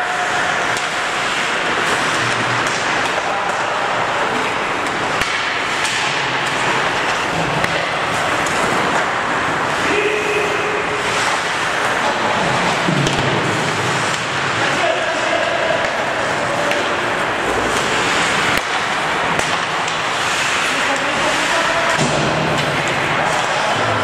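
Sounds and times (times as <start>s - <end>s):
rink background rushing noise: 0.0s - 24.0s
skates scraping ice: 0.0s - 24.0s
sticks and puck clacking: 0.0s - 24.0s
players shouting: 7.8s - 12.3s, 20.4s - 24.0s.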